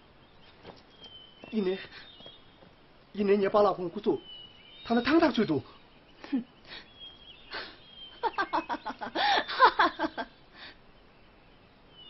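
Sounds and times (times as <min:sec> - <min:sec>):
woman laughing: 0:06.2 - 0:06.5, 0:07.5 - 0:10.4.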